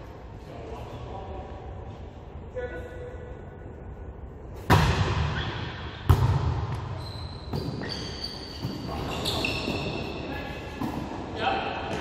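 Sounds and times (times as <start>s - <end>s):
volleyball being struck: 4.7s - 5.4s, 6.0s - 6.9s
shoe squeaks: 6.8s - 10.6s.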